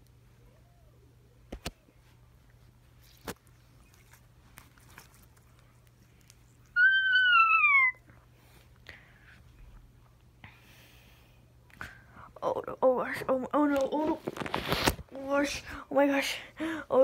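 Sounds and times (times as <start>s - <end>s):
loud high cry: 6.8s - 8.0s.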